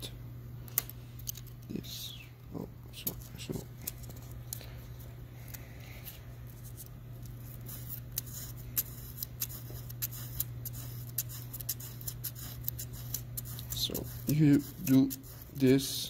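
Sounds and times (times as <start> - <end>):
steady low hum: 0.0 - 16.0
sandpaper scratching: 7.5 - 16.0.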